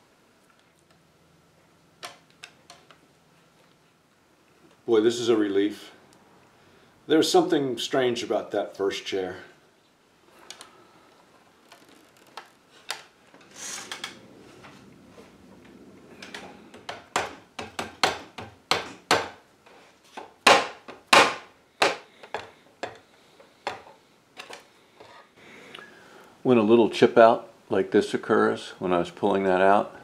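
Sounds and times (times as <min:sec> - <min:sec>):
wooden scrape: 0:11.6 - 0:17.2, 0:19.6 - 0:20.3
chair handling: 0:11.7 - 0:18.0
sharp wooden knocks: 0:16.3 - 0:19.4, 0:20.2 - 0:23.0.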